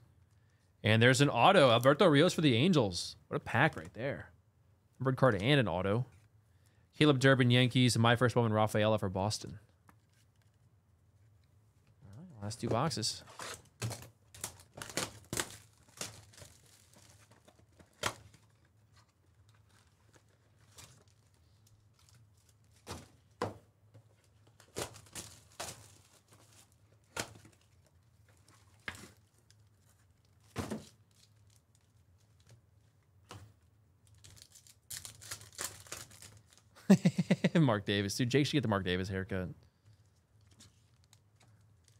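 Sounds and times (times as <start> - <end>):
wrapper crinkling: 13.3 - 22.9, 24.2 - 32.6, 34.0 - 36.8.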